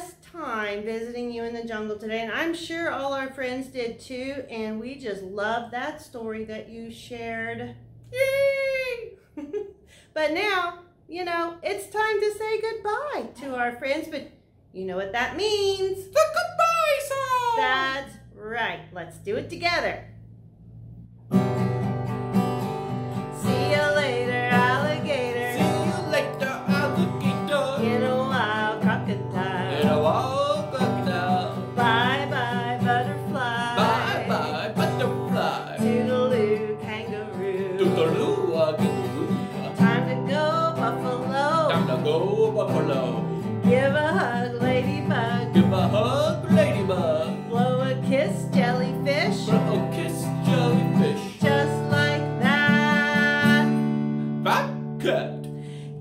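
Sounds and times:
acoustic guitar strumming: 21.2 - 56.0
woman singing: 23.3 - 54.0.

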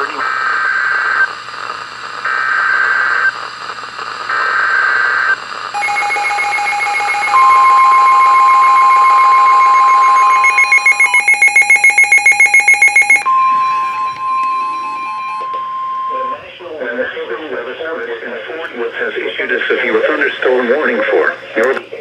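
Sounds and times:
screechy digital data bursts: 4.7 - 13.3
rapid pulsing alarm beep: 5.8 - 16.4
steady alarm tone: 5.8 - 16.5
weather radio warning tone: 7.0 - 17.7.

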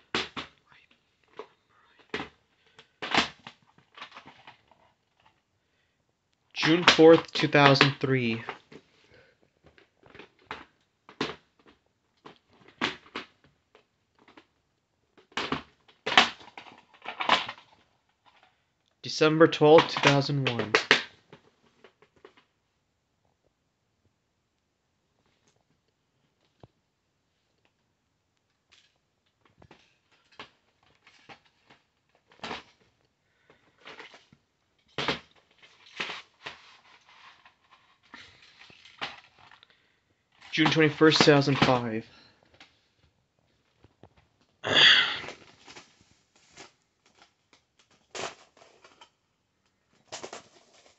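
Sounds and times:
plastic tape cases handled: 1.3 - 5.4, 15.1 - 18.5, 33.5 - 39.7, 45.2 - 49.2, 49.9 - 50.9
plastic case clicking and clacking: 1.4 - 5.4, 15.2 - 18.5, 19.8 - 22.4.

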